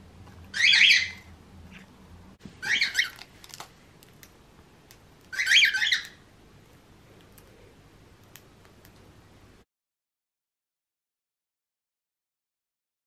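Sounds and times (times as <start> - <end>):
parrot calling: 0.5 - 1.3, 2.6 - 3.2, 5.3 - 6.2.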